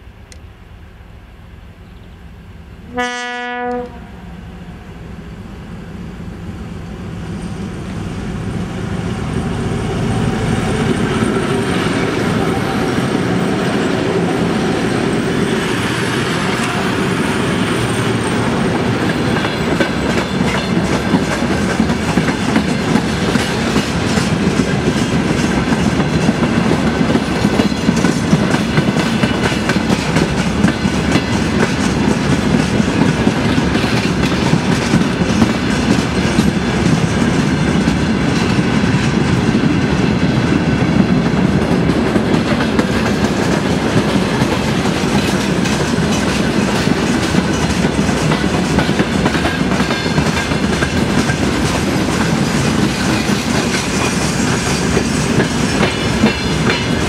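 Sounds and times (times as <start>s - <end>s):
diesel locomotive engines rumbling: 0.0s - 57.0s
train horn blast: 2.8s - 4.9s
wagon wheels clacking over rail joints: 18.2s - 39.2s, 41.4s - 57.0s.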